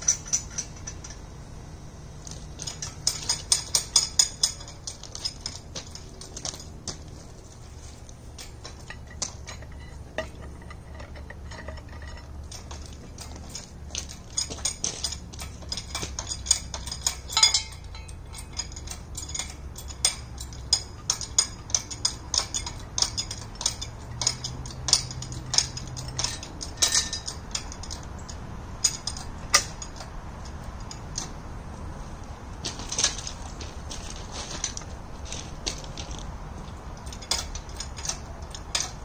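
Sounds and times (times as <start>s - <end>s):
hydraulic hoist metal clicks: 0.0s - 1.4s, 2.2s - 7.2s, 8.0s - 31.4s, 35.7s - 39.0s.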